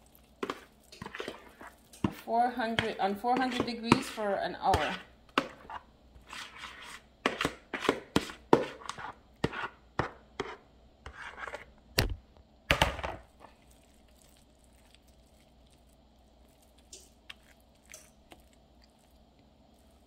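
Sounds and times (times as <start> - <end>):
metal spoon scraping a bowl: 0.4 - 9.8, 10.4 - 11.7.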